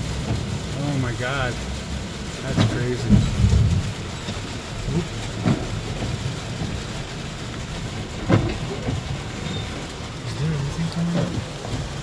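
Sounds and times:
rain on vehicle roof: 0:00.0 - 0:12.0
low rumble: 0:02.6 - 0:12.0.

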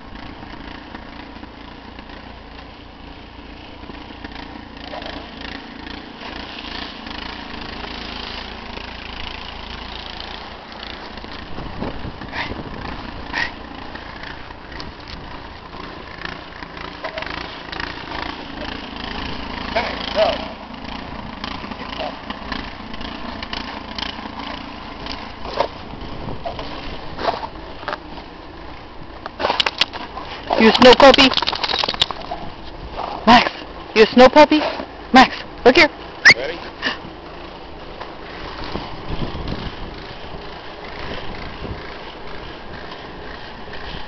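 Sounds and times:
engine running steadily: 0:00.0 - 0:44.0
wind buffeting microphone: 0:11.5 - 0:13.5, 0:25.8 - 0:27.2, 0:38.6 - 0:42.8.

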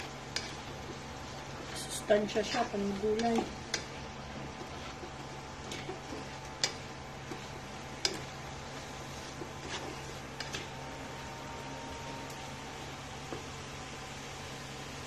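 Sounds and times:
metal spatula scraping a wok: 0:00.0 - 0:10.8
steady low hum: 0:00.0 - 0:15.0.

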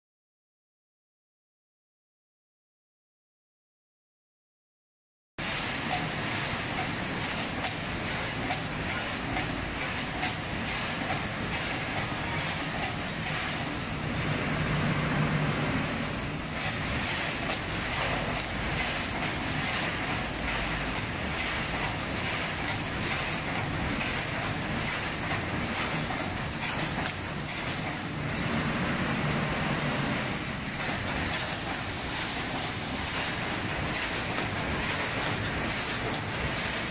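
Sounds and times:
welding machine clattering: 0:05.7 - 0:13.9, 0:16.6 - 0:28.1, 0:30.7 - 0:36.9.

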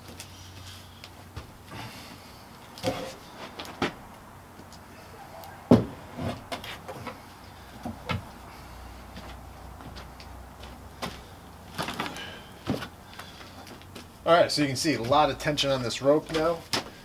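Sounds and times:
wooden knocks and clunks: 0:05.7 - 0:07.2.

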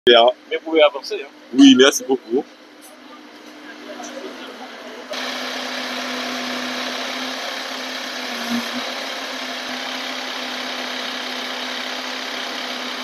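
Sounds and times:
aerial lift engine humming: 0:01.6 - 0:13.0
hydraulic hiss: 0:05.2 - 0:12.9.

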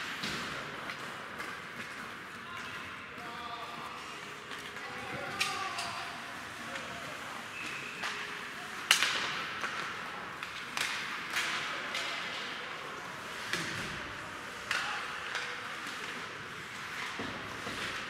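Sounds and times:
skates scraping ice: 0:00.1 - 0:18.0
hockey sticks knocking puck: 0:08.8 - 0:12.4, 0:13.3 - 0:18.0.

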